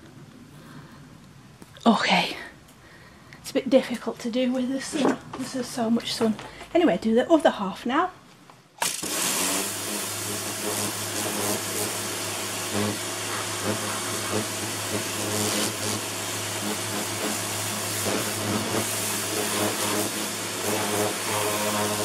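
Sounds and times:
pressure washer motor humming: 8.8s - 22.0s
water jet hissing on plastic: 8.8s - 22.0s.

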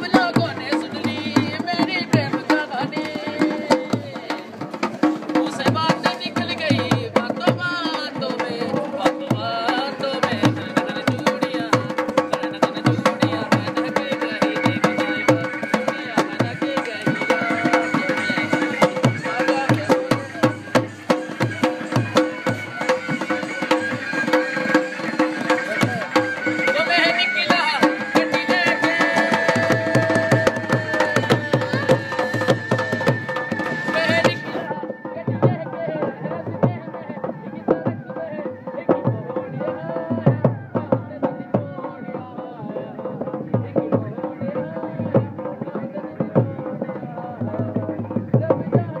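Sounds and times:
barrel drum fast rhythm: 0.0s - 49.0s
folk melody: 14.0s - 35.8s.

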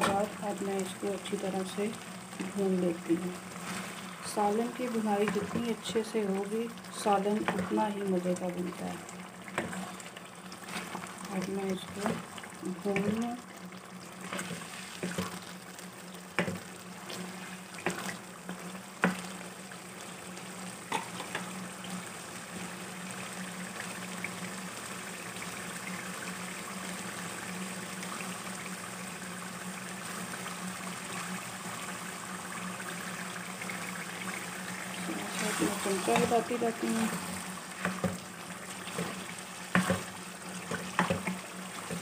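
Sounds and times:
curry sizzling in oil: 0.0s - 42.0s
spatula scraping pan: 35.1s - 38.2s.

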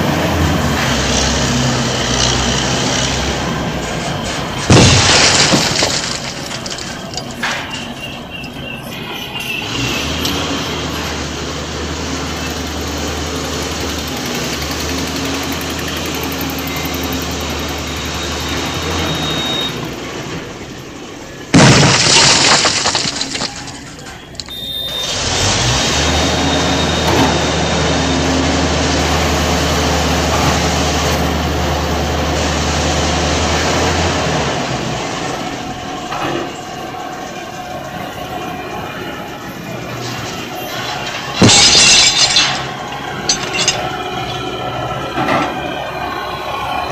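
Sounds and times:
heavy diesel machinery running: 0.0s - 46.9s
loud crash: 4.2s - 7.9s, 21.5s - 24.0s, 40.0s - 44.5s.

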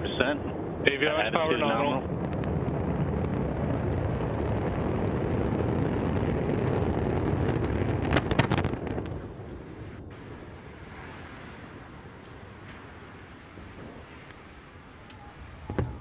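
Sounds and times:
deep rocket explosion rumble: 0.0s - 16.0s
sharp cracks: 2.1s - 10.1s.

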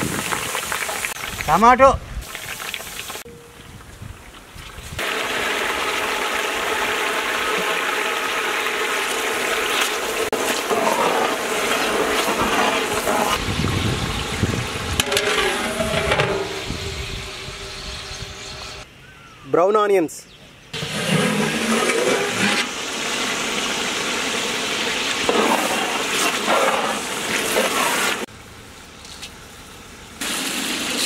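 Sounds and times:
tomatoes sizzling in hot oil: 5.0s - 18.0s, 22.2s - 28.3s.

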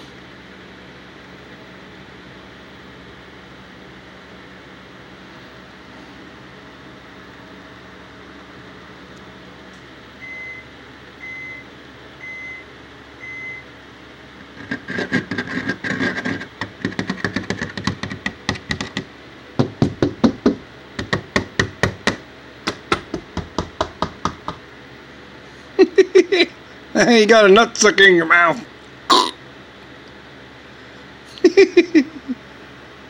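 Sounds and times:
rapid sharp clicks and crunching: 14.6s - 19.1s.

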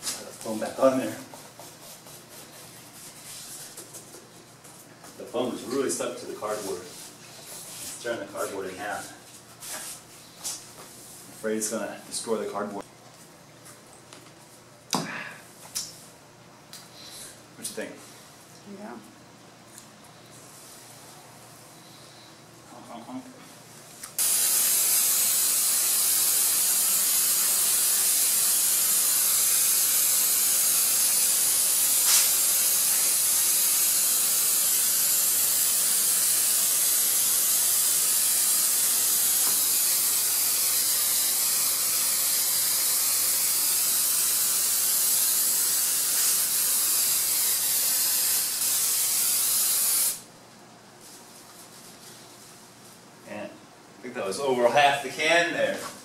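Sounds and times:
aerosol can spraying hiss: 24.2s - 50.3s.

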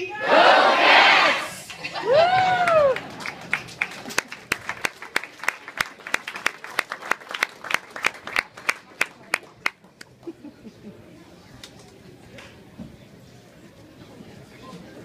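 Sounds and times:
small audience clapping: 2.3s - 10.2s.

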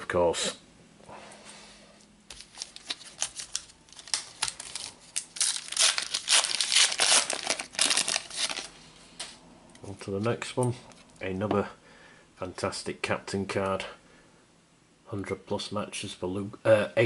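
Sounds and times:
card pack wrapper tearing and crinkling: 2.3s - 8.7s.

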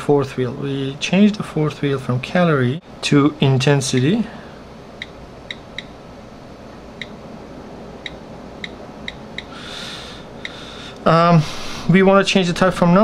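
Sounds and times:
low room hiss: 0.0s - 13.0s
soft breathy hiss: 4.2s - 4.8s, 9.4s - 12.1s.

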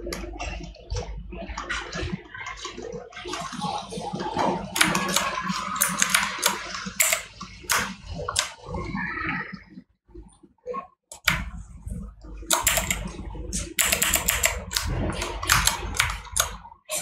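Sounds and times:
computer mouse clicks: 4.8s - 8.6s, 11.1s - 11.6s, 12.5s - 17.0s.

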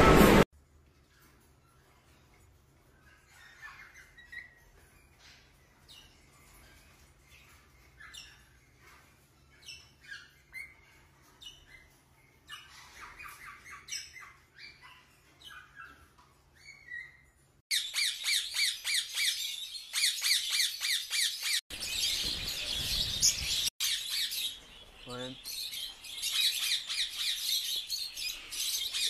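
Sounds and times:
parrots squawking and chirping: 1.0s - 29.0s
parrots chattering: 2.9s - 21.6s.

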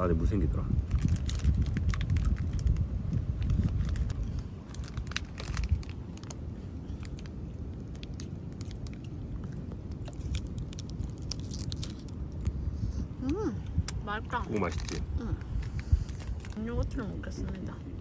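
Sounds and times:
low rumble: 0.0s - 18.0s
wrapper crinkling: 0.8s - 12.6s, 14.4s - 17.1s.

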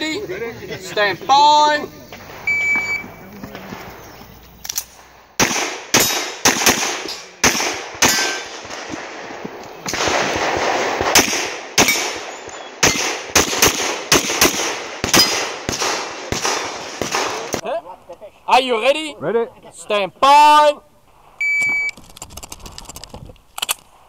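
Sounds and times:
rapid pistol shots: 4.8s - 17.6s
bullets clanging on steel targets: 5.9s - 6.3s, 7.0s - 8.6s.

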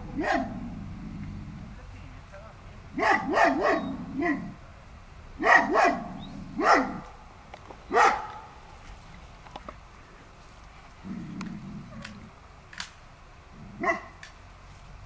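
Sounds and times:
dogs barking: 0.0s - 1.5s, 2.9s - 4.6s, 5.4s - 7.3s, 7.9s - 8.6s, 13.7s - 14.2s.

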